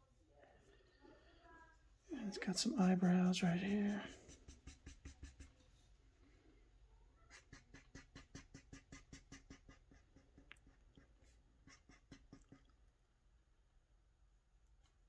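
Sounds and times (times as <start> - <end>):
marker scratching on paper: 2.4 - 5.9, 7.3 - 12.7.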